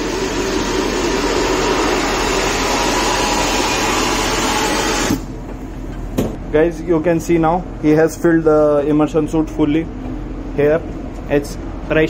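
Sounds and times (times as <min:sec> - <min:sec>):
air rushing through hose: 0:00.0 - 0:05.4.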